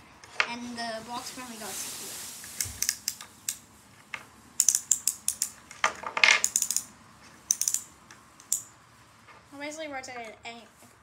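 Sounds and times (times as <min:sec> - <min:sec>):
toy crane mechanism clicking: 0:04.6 - 0:06.9, 0:07.5 - 0:08.7.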